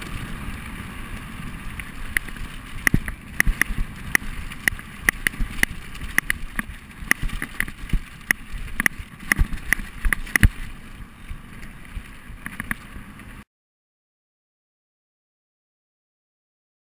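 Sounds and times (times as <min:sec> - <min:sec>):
bike rattling over bumps: 0:00.0 - 0:13.4
wind rumble on microphone: 0:00.0 - 0:13.4.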